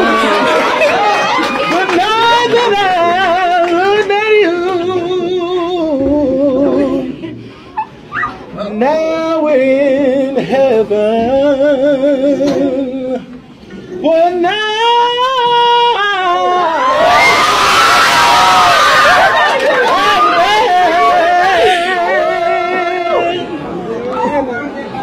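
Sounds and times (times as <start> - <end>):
person singing with vibrato: 1.6 - 7.5, 8.4 - 17.1, 19.9 - 23.6.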